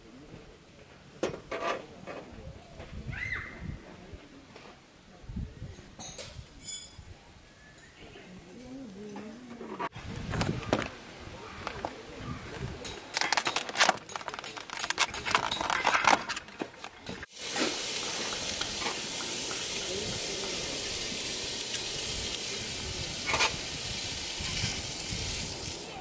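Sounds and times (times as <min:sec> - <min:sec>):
plastic tray crinkling: 0:12.9 - 0:17.3
steak sizzling on grill: 0:17.2 - 0:26.0.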